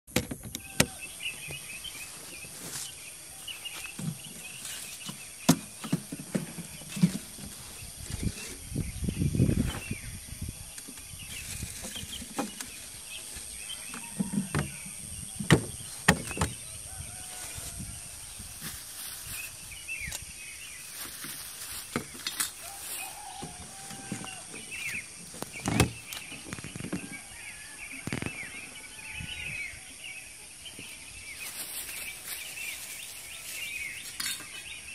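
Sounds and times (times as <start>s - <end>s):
insect hum: 0.1s - 34.9s
metal cases knocking: 4.0s - 7.6s, 13.8s - 16.6s.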